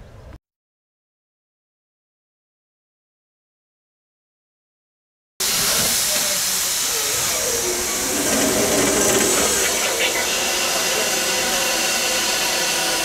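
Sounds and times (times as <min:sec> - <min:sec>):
loud hiss of escaping steam: 0:05.4 - 0:13.0.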